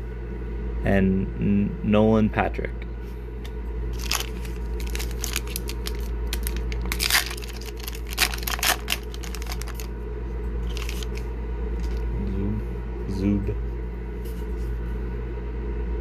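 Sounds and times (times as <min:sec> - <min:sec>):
foil wrapper tearing and crinkling: 0:03.9 - 0:09.9, 0:10.6 - 0:11.2.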